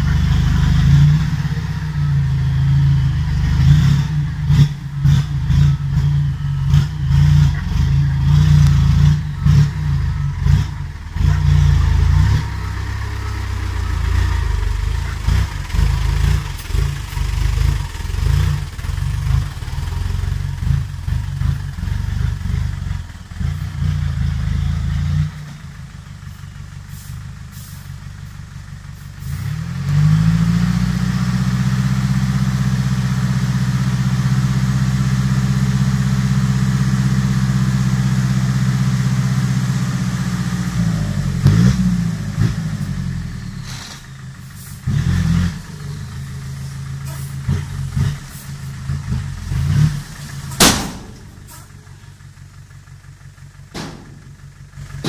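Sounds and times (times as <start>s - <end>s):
diesel truck engine revving: 0.0s - 55.0s
rattling: 46.8s - 55.0s.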